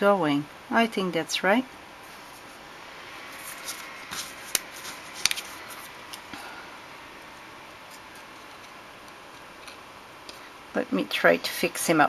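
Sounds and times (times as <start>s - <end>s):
faint room hiss: 0.0s - 12.0s
cardstock paper clicks and rustles: 3.4s - 6.4s.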